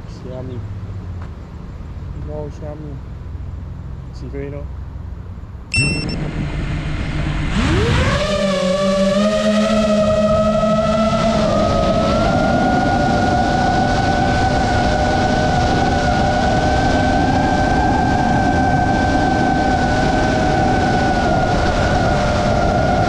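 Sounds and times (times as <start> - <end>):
drone motors whining: 5.7 - 23.0
wind noise: 9.3 - 23.0.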